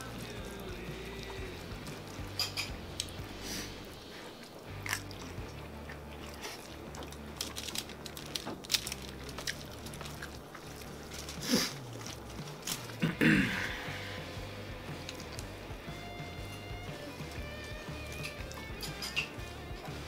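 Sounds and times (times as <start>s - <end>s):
biting and chewing food: 0.0s - 13.3s, 14.7s - 20.0s
fork scraping on tinfoil: 7.5s - 13.0s.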